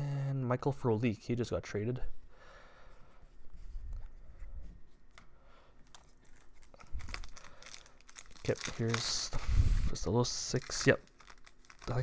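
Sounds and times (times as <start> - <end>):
foil pack rustle: 5.9 - 12.0.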